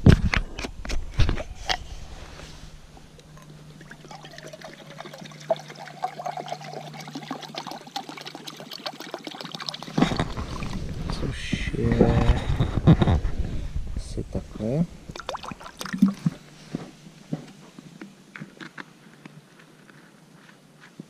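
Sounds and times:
water pouring into cup: 3.2s - 11.2s, 15.1s - 16.5s.

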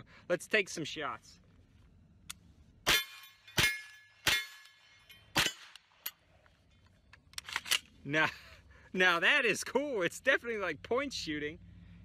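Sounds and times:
gunshots: 2.8s - 4.7s, 5.3s - 5.9s.

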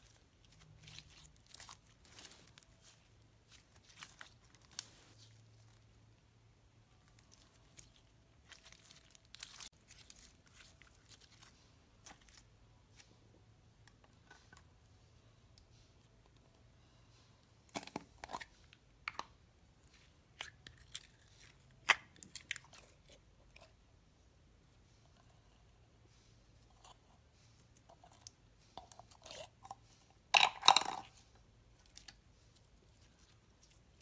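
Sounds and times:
sticky slime squelching: 0.0s - 6.2s, 6.9s - 13.2s, 31.7s - 34.0s.

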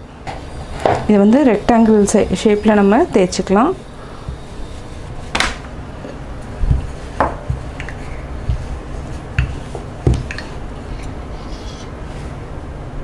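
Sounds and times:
rolling pin rolling dough: 0.5s - 11.2s
rolling pin knocking on board: 4.2s - 4.6s, 6.6s - 10.4s.

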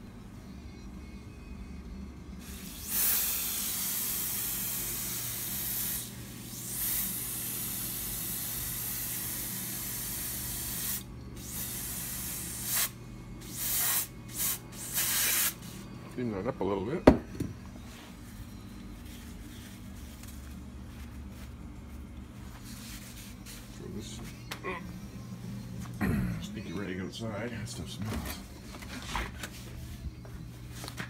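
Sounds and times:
steady low hum: 0.0s - 31.0s
aerosol spray can hissing: 2.4s - 15.7s.

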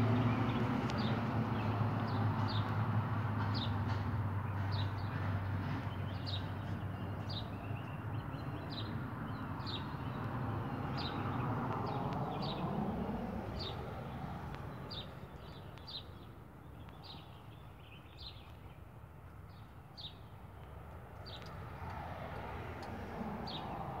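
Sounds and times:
bird chirping: 4.5s - 12.8s, 14.7s - 18.9s.

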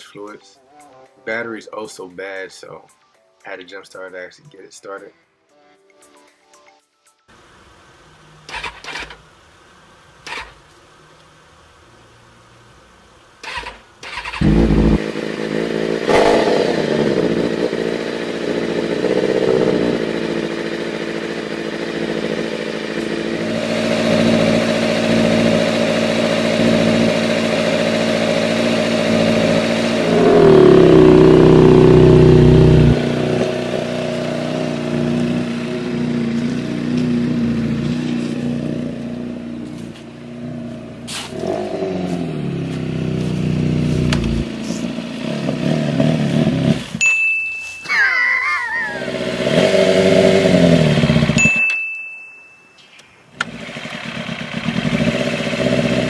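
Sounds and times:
motorcycle engine idling and revving: 13.4s - 47.0s, 48.8s - 51.7s, 53.3s - 56.0s.

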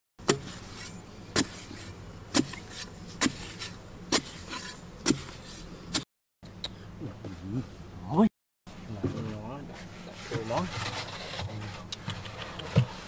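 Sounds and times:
digging bar thudding into earth: 0.2s - 6.1s
low steady hum: 0.2s - 13.0s.

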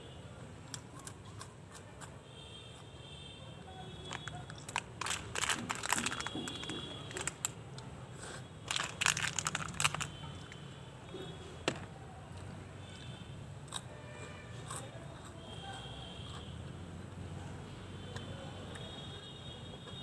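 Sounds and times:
plastic snack packet crinkling: 4.0s - 7.6s, 8.6s - 10.6s.

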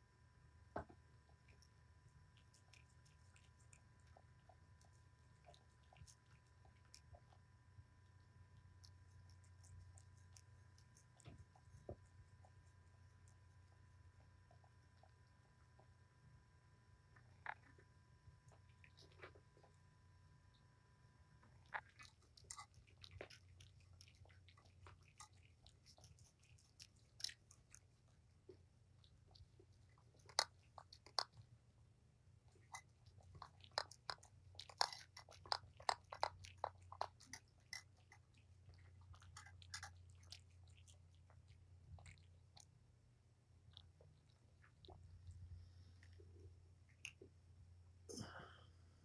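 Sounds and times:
faint low hum: 0.0s - 49.0s
cat crunching dry food: 1.3s - 15.9s, 17.0s - 19.9s, 21.4s - 31.6s, 32.4s - 42.8s.

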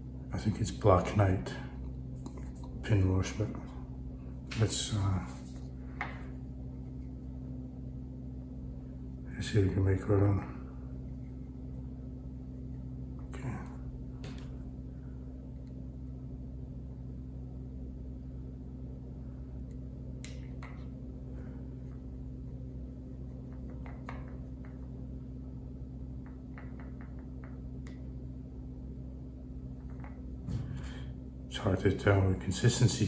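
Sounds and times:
steady low hum: 0.0s - 33.0s
paintbrush tapping in plastic palette: 23.4s - 25.0s, 26.2s - 28.0s.

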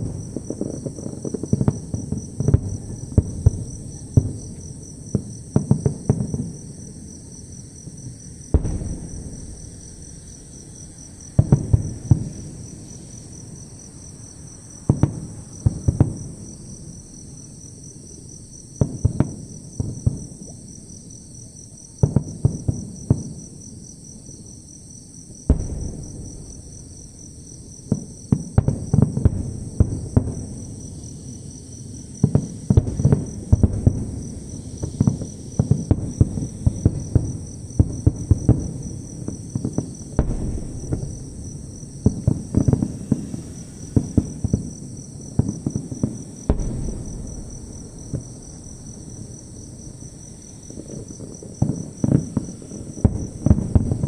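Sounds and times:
distant fireworks booming and crackling: 0.0s - 54.0s
insects chirring: 0.0s - 54.0s.

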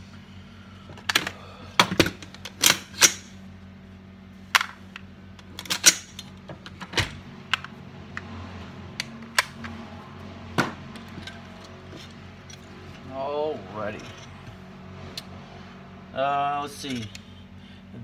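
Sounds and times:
rifle parts clicking and clacking: 16.8s - 17.3s.

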